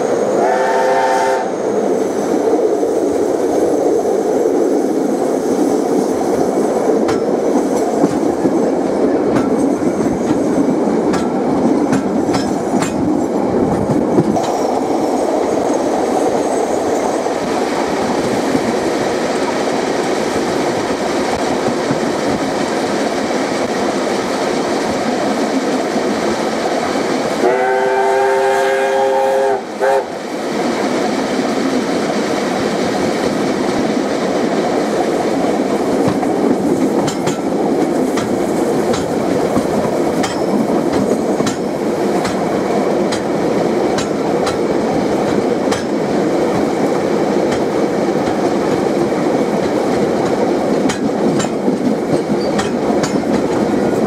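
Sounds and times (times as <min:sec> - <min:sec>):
steam train running noise: 0:00.0 - 0:54.0
steam locomotive chime whistle: 0:00.4 - 0:01.6, 0:27.4 - 0:30.1
wheels clicking over rail joints: 0:06.3 - 0:27.4, 0:30.7 - 0:54.0.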